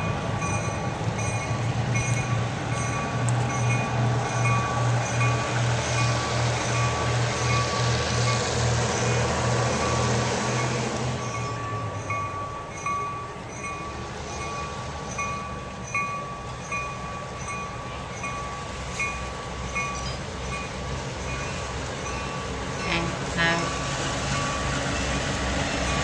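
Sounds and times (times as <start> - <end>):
bell ringing: 0.0 - 7.8, 10.7 - 23.1
diesel locomotive rumble: 0.0 - 26.0.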